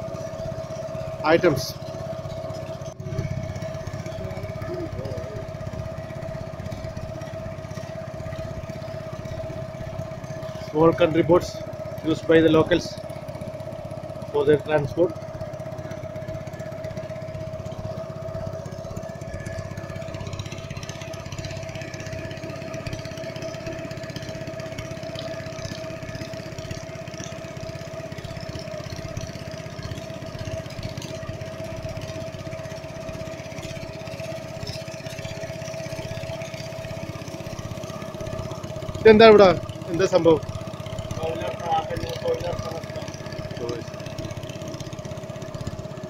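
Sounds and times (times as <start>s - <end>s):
boat engine droning: 0.0s - 46.0s.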